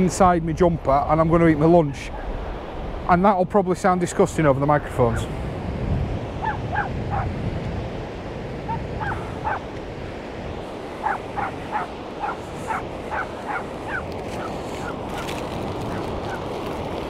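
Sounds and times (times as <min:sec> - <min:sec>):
surf: 0:00.0 - 0:17.0
wind noise on microphone: 0:00.0 - 0:17.0
seagull calling: 0:06.4 - 0:07.3, 0:08.6 - 0:09.7, 0:10.9 - 0:16.5.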